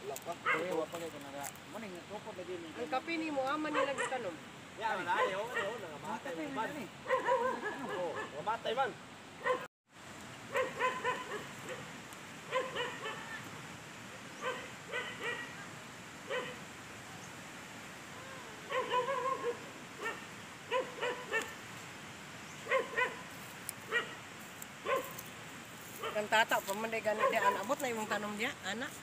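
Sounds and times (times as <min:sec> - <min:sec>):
dog barking: 0:00.4 - 0:00.8, 0:03.7 - 0:04.4, 0:05.0 - 0:05.9, 0:07.0 - 0:08.5, 0:09.4 - 0:09.7, 0:10.5 - 0:11.9, 0:12.5 - 0:13.4, 0:14.4 - 0:15.6, 0:16.3 - 0:16.6, 0:18.7 - 0:21.6, 0:22.6 - 0:23.3, 0:23.9 - 0:24.2, 0:24.8 - 0:25.2, 0:26.0 - 0:26.3, 0:27.1 - 0:27.8.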